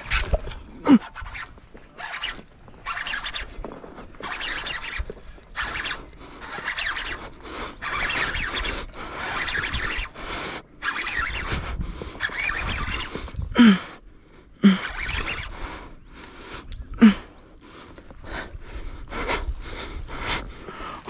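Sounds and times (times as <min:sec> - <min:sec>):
fishing reel cranking: 0:00.0 - 0:13.4, 0:14.6 - 0:15.6.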